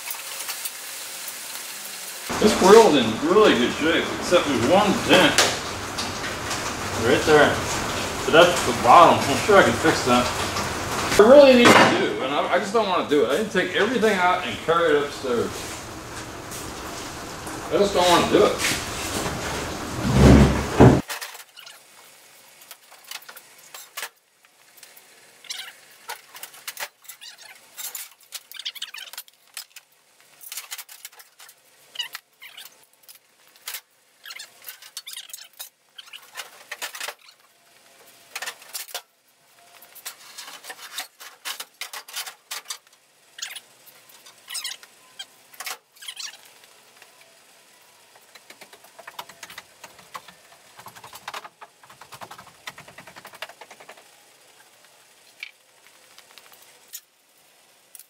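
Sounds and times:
scuffs and rustles: 15.4s - 21.0s.

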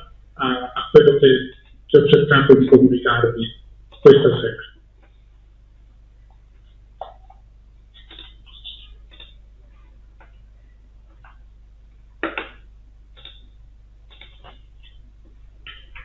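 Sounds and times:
low hum: 0.0s - 16.0s
small clicks and taps: 6.2s - 9.4s, 10.1s - 11.5s, 12.2s - 16.0s.

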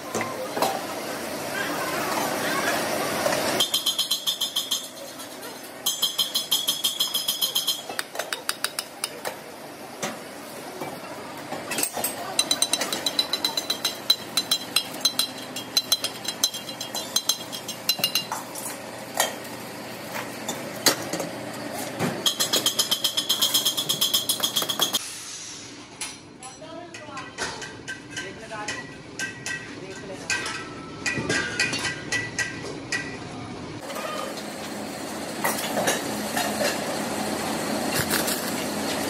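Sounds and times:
high ringing steel shell: 3.6s - 8.0s.

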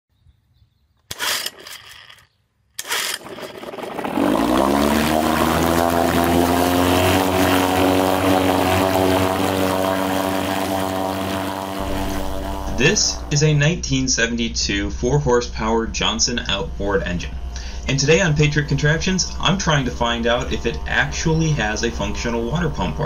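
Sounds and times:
outboard motor pull-starting and running: 1.0s - 13.3s
propeller churning water: 1.1s - 2.2s, 2.8s - 13.5s, 17.4s - 23.0s.

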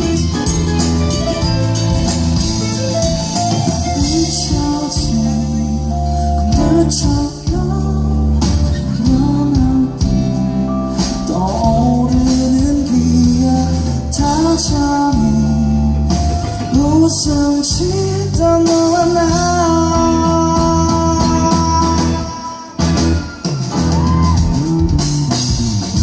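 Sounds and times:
live pop-rock band playing: 0.0s - 26.0s
person singing: 3.8s - 25.3s.

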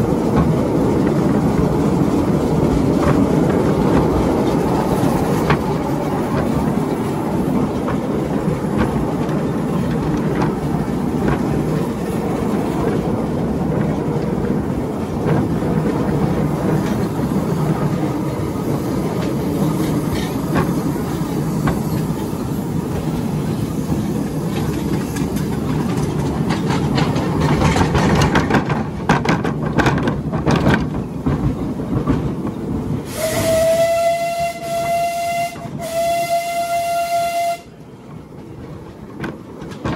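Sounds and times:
train wheels clattering on rail: 0.0s - 39.9s
steam whistle: 33.1s - 37.7s.

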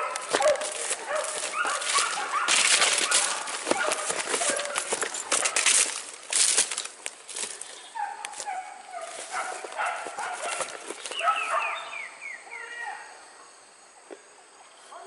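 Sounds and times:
dogs yelping and barking: 0.0s - 6.0s, 7.8s - 13.1s
undergrowth rustling: 0.0s - 12.3s.

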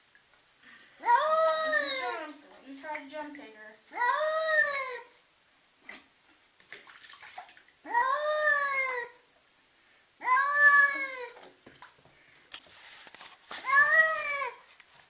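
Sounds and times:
faint water sounds: 0.0s - 9.2s
cat yowling: 1.0s - 2.2s, 4.0s - 5.0s, 7.9s - 9.2s, 10.2s - 11.4s, 13.6s - 14.6s.

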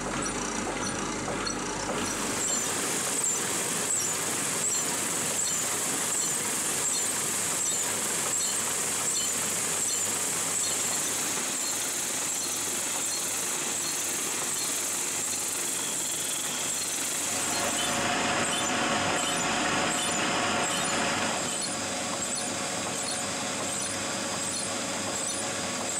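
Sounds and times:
squeaking linkage: 0.0s - 2.6s, 10.6s - 25.9s
drill press running: 0.0s - 25.9s.

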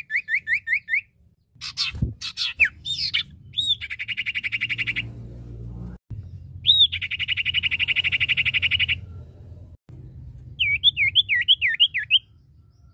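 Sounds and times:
bird whistling and trilling: 0.0s - 5.0s, 6.6s - 9.1s, 10.6s - 12.4s.

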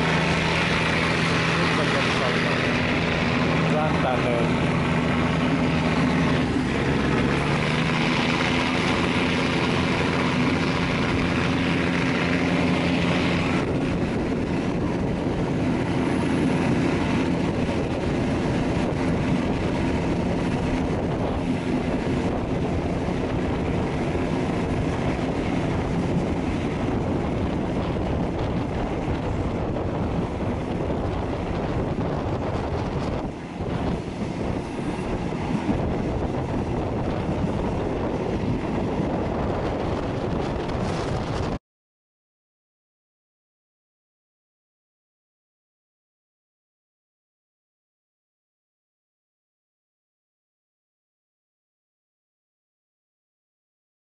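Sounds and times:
train engine and wheels rumbling: 0.0s - 41.6s.

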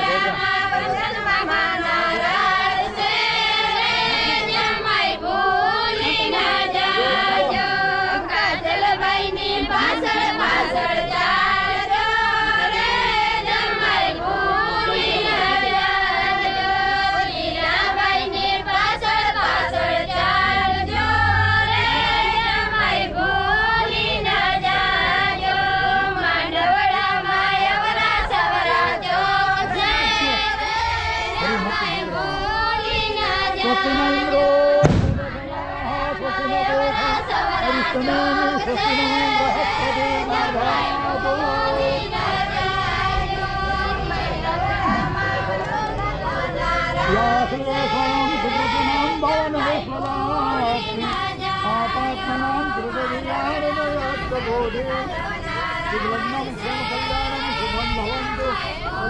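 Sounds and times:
women and girls singing folk song: 0.0s - 59.0s.

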